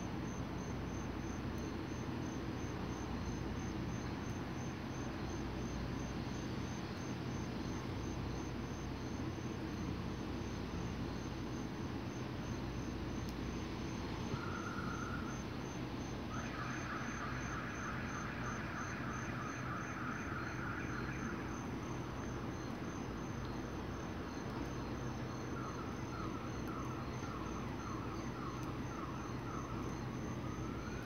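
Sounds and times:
crickets chirping: 0.0s - 31.0s.

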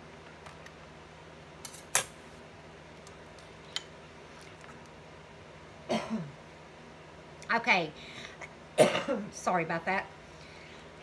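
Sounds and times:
person coughing: 5.9s - 6.3s, 8.8s - 9.3s.

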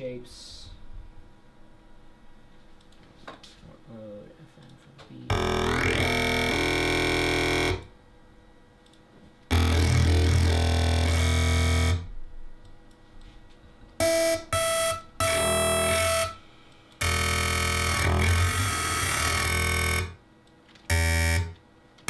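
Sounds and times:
deep synth bass note: 5.3s - 7.9s, 9.5s - 12.4s.

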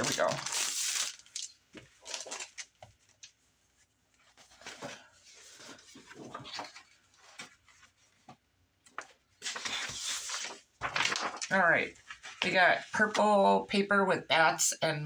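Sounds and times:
cellophane crinkling and rustling: 0.0s - 3.4s, 9.0s - 12.6s.

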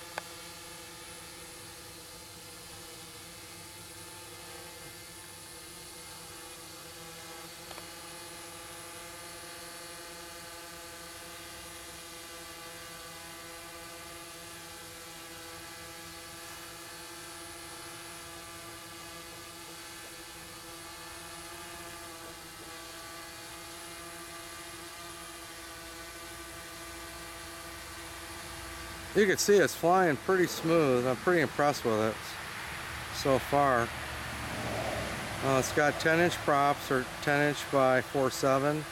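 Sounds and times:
drone motors buzzing whir: 0.0s - 38.9s.

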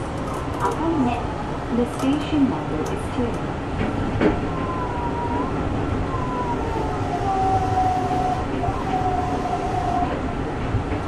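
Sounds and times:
train running rumble: 0.0s - 11.0s.

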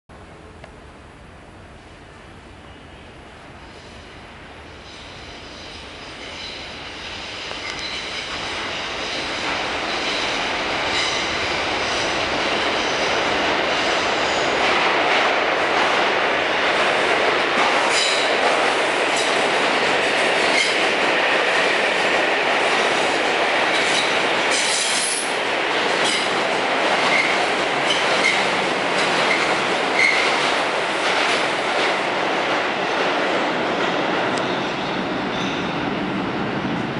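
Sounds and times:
subway train passing: 0.1s - 36.9s
high wheel squeals: 29.3s - 30.4s.

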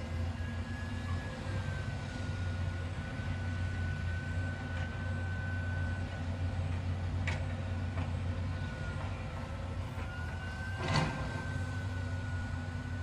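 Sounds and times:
excavator diesel engine running: 0.0s - 13.0s
high hydraulic whine: 8.4s - 13.0s.

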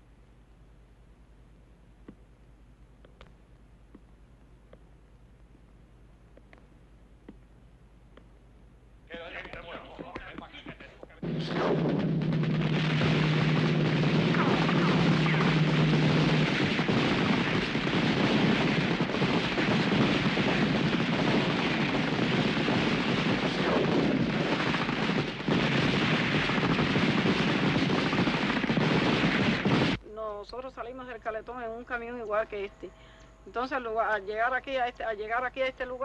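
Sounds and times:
steady low drone: 11.2s - 27.8s
rapid automatic gunfire: 11.2s - 30.0s.

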